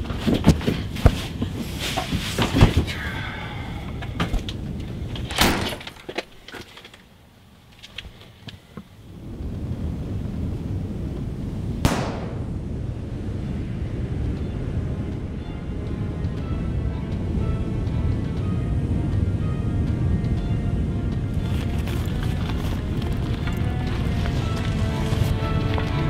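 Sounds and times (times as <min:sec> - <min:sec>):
low rumble: 0:09.1 - 0:26.0
single sharp hit: 0:11.9 - 0:12.6.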